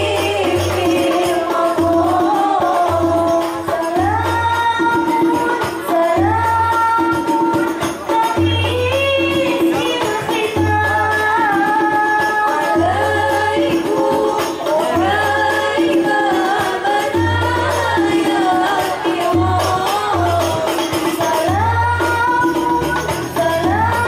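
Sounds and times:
frame drum percussion: 0.0 - 24.0
women singing: 0.0 - 24.0.

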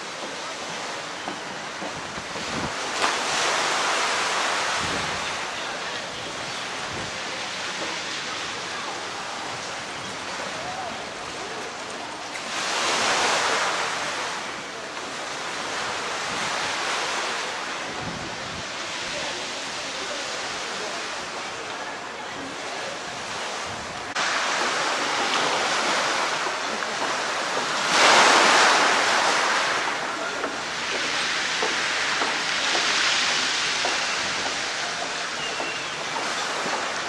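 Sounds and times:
waves washing over shingle: 0.0 - 37.0.

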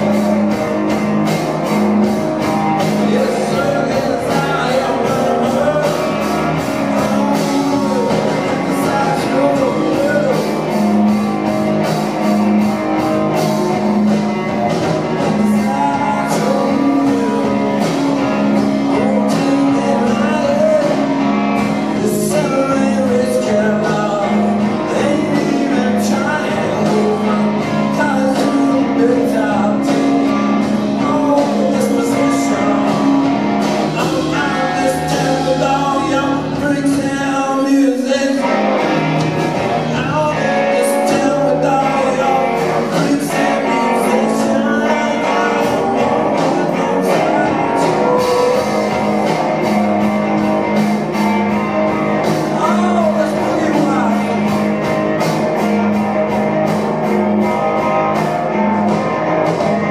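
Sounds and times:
man singing: 0.0 - 1.1, 2.1 - 10.8, 15.0 - 38.8, 39.7 - 49.4, 52.2 - 54.6
steady drum beat: 0.0 - 59.9
strummed electric guitar: 0.0 - 59.9.

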